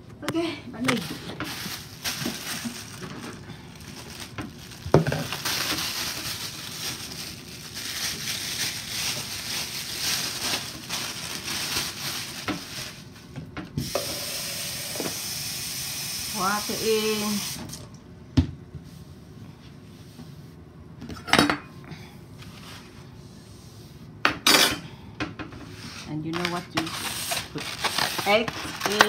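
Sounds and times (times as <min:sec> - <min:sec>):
plastic bag crinkling: 0:00.8 - 0:13.3, 0:26.3 - 0:29.0.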